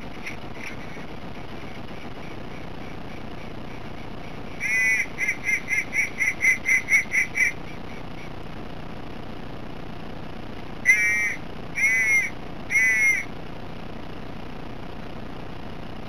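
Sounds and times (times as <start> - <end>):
steady background hiss: 0.0 - 16.0
duck call quacks: 0.2 - 8.3, 10.8 - 13.3.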